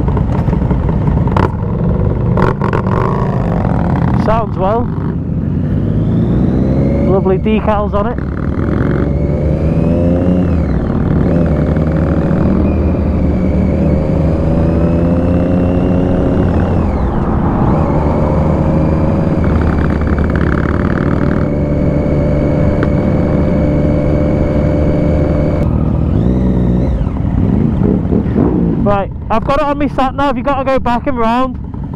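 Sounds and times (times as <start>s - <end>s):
motorcycle engine accelerating: 0.0s - 31.9s
wind rush: 9.5s - 24.7s.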